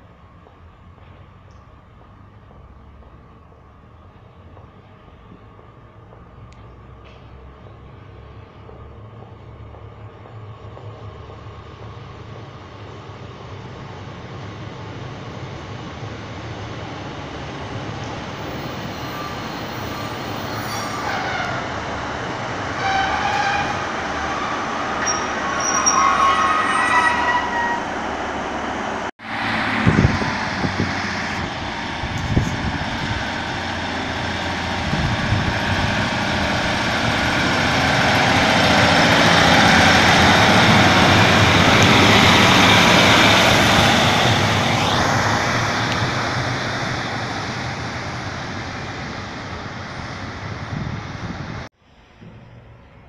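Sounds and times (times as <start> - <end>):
diesel train approaching: 0.0 - 53.0
thin squealing tones: 18.8 - 21.7, 22.8 - 28.0.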